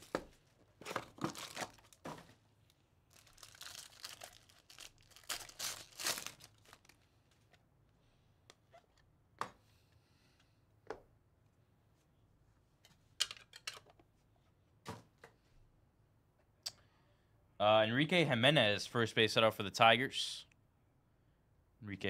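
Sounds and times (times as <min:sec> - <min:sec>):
foil wrapper tearing and crinkling: 0:03.1 - 0:07.0.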